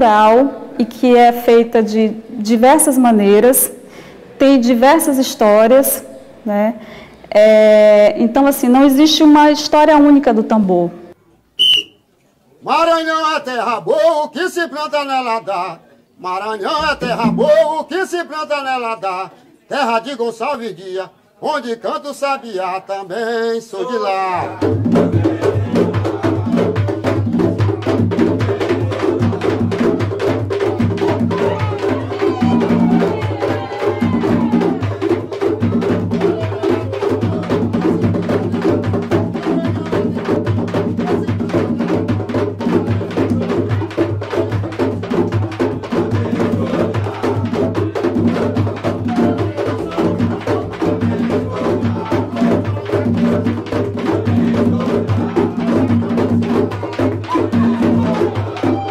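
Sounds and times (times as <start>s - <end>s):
hand drums playing fast rhythm: 16.8s - 17.7s, 24.4s - 58.9s.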